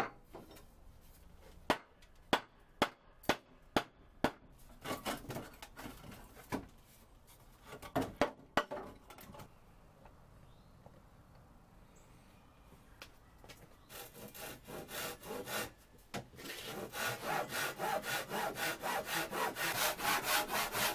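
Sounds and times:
wood scraping: 16.3 - 20.9.

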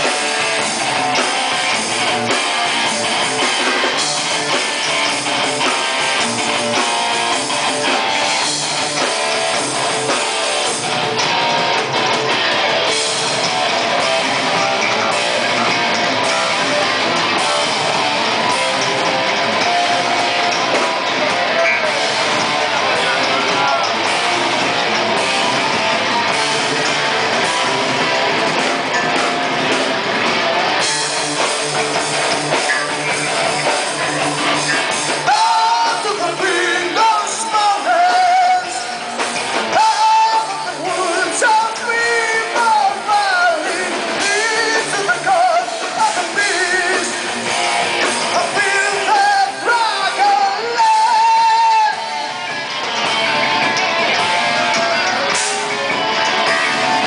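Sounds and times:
distorted electric guitar: 0.0 - 57.0
drums: 0.0 - 57.0
person singing: 35.1 - 52.4.

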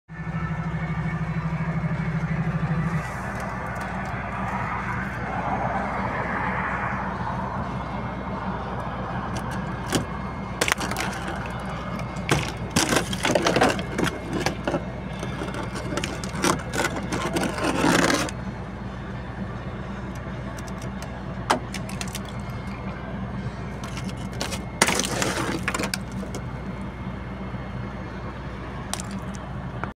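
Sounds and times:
steady low hum: 0.1 - 29.9
fingers scraping frost: 10.6 - 18.4.

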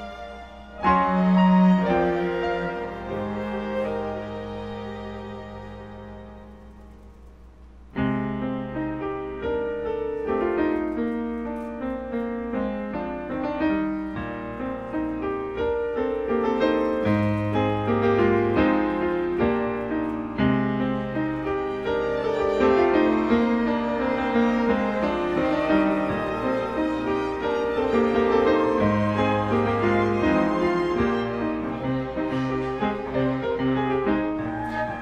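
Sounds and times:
grand piano playing: 0.0 - 35.0.

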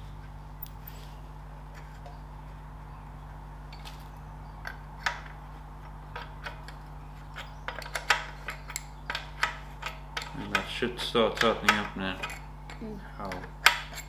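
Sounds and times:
steady low hum: 0.0 - 14.0
spanner clinking on metal bolt: 6.2 - 14.0.

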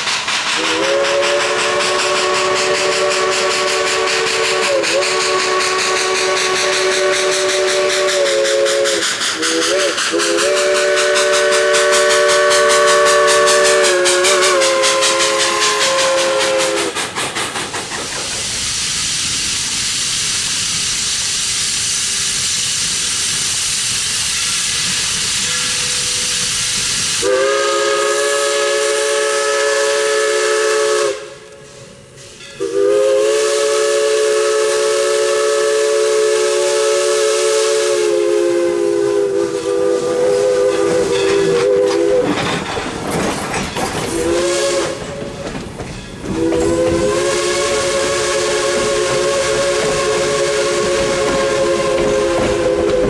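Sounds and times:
steam locomotive chime whistle: 0.0 - 17.0, 24.2 - 42.4, 44.1 - 53.0
steam hiss: 0.0 - 53.0
train cars clattering: 0.0 - 53.0.

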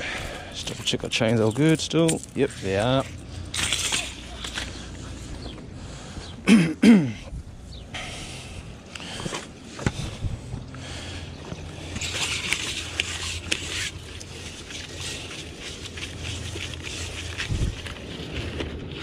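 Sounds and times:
low steady hum: 0.0 - 19.0
drain cable scraping: 0.6 - 5.5, 11.5 - 19.0.

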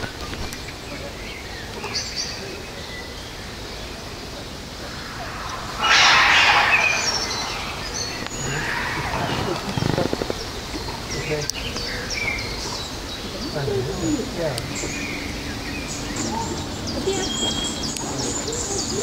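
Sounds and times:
outdoor ambience: 2.7 - 13.2
faint bird chirps: 4.8 - 10.5
loud burst of noise: 4.9 - 9.8.

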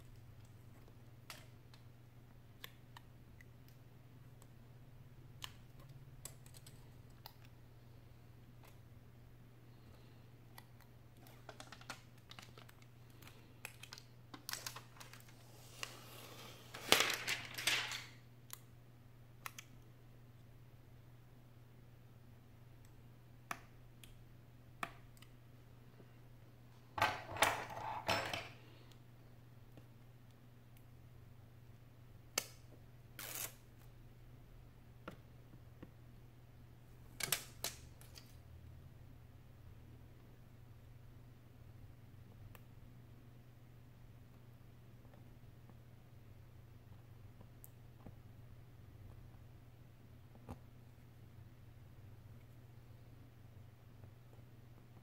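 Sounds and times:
faint low hum: 0.0 - 55.0
crinkling rustle: 11.2 - 16.1.

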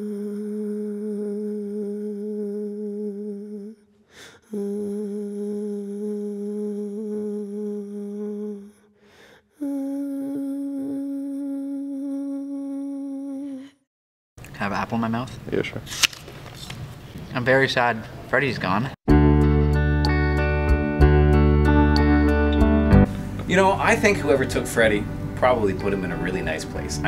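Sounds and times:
person humming long notes: 0.0 - 13.8
person breathing: 4.0 - 4.8, 8.6 - 9.6.

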